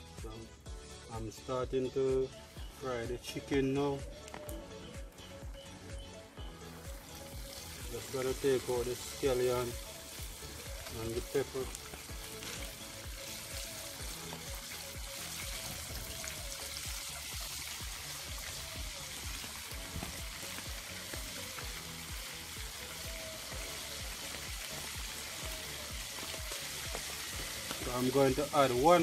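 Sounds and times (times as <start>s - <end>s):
chicken deep-frying in oil: 6.9s - 29.0s.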